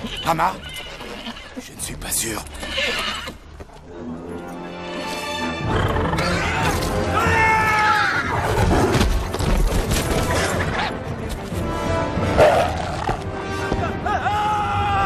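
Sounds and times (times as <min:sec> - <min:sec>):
dramatic film music: 0:00.0 - 0:15.0
animal snarls: 0:12.4 - 0:13.2.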